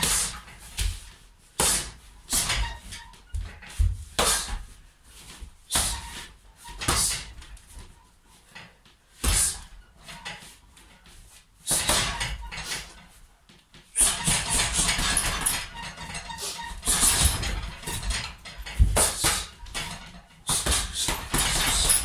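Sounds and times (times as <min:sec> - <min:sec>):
punches hitting heavy bag: 0:11.7 - 0:12.3, 0:16.8 - 0:22.0.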